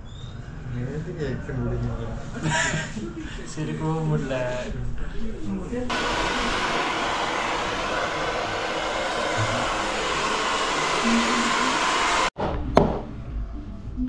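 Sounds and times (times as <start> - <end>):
hair dryer blowing: 5.9 - 12.4.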